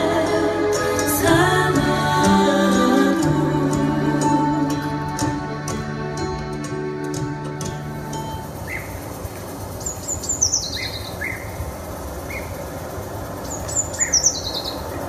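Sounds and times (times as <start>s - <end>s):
high trilled birdsong over speakers: 8.1s - 15.0s.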